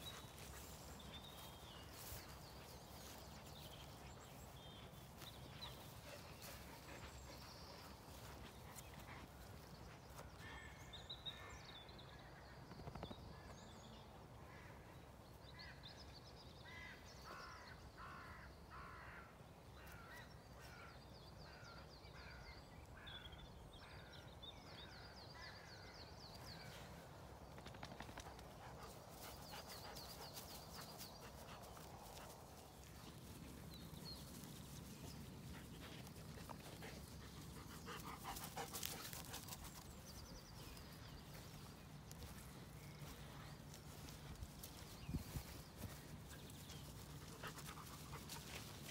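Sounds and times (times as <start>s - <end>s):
thin birdsong: 0.0s - 19.2s, 19.8s - 48.9s.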